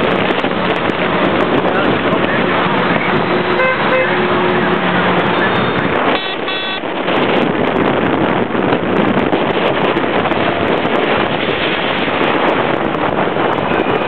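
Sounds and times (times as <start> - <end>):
heavy truck rumbling past: 0.0 - 14.0
wind on microphone: 0.0 - 14.0
vehicle horn toots: 3.4 - 4.4, 5.3 - 6.9.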